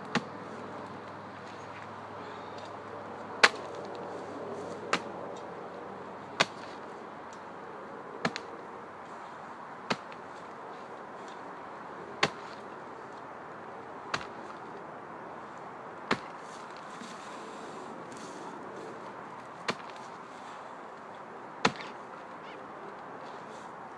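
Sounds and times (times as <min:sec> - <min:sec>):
sword blade chopping wood: 0:03.4 - 0:03.7, 0:06.4 - 0:06.8, 0:09.9 - 0:10.2, 0:12.2 - 0:12.6, 0:16.1 - 0:16.4, 0:19.6 - 0:20.0, 0:21.6 - 0:21.9.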